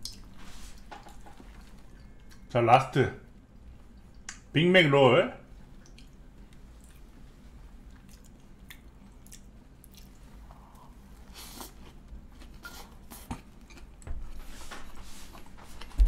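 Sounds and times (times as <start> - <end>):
wet chewing and mouth sounds: 0.0 - 2.5, 3.4 - 4.5, 5.6 - 16.0
bites and squishes: 7.8 - 10.4.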